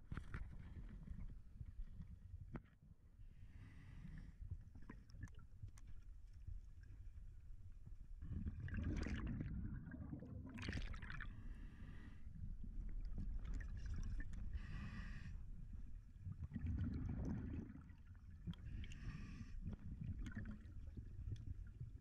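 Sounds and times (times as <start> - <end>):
low water rumble: 0.0 - 22.0
exhaled bubbles gushing: 8.2 - 11.6, 13.0 - 14.4, 16.4 - 19.0, 19.9 - 22.0
scuba regulator hissing inhalations: 14.6 - 15.3.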